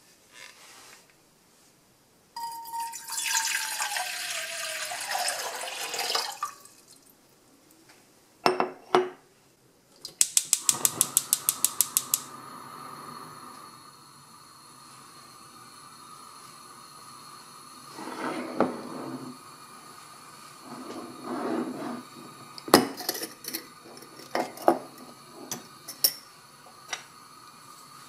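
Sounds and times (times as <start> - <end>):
water pouring into a pot: 2.4 - 7.2
gas burner hissing: 3.4 - 6.4, 10.1 - 28.0
gas igniter clicking rapidly: 10.1 - 12.3.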